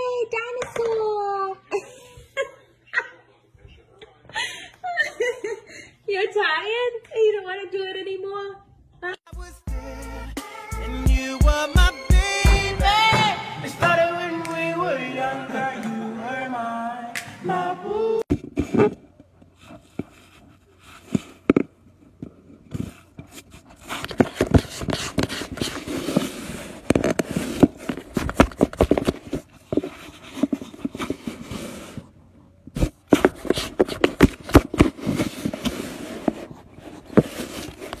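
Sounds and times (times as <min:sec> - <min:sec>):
cat scratching against phone: 0:22.7 - 0:32.1, 0:32.8 - 0:38.0.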